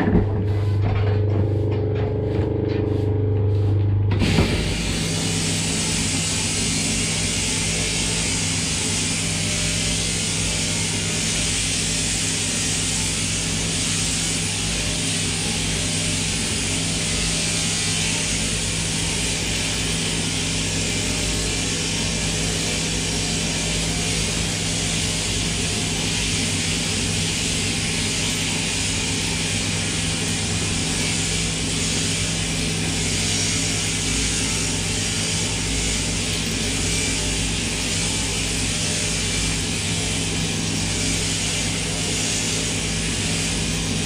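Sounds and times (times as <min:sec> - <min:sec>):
motor hum: 0:00.0 - 0:13.7
shearing cutter buzzing: 0:00.0 - 0:44.0.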